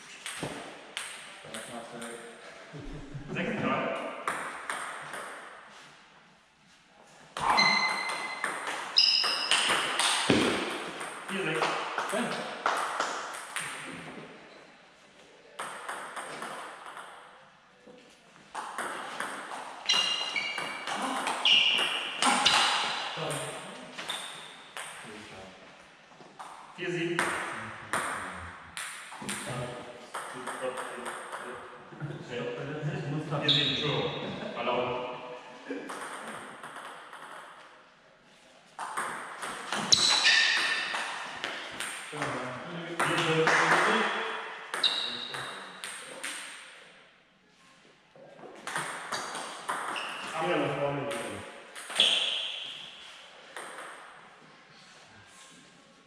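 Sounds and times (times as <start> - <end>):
ball bouncing on table: 0.2 - 2.2, 7.4 - 14.3, 15.6 - 17.2, 18.5 - 25.0, 27.2 - 31.5, 35.9 - 37.6, 43.0 - 46.8, 48.5 - 50.3, 51.1 - 52.3, 53.6 - 54.1
ping pong ball hitting rackets: 0.2 - 2.3, 4.2 - 5.6, 7.4 - 14.2, 15.6 - 17.3, 18.5 - 25.0, 27.2 - 31.6, 35.9 - 37.7, 38.8 - 42.4, 43.0 - 46.8, 48.6 - 50.3, 51.1 - 54.2
brief high squeak: 7.4 - 8.4, 52.0 - 52.6.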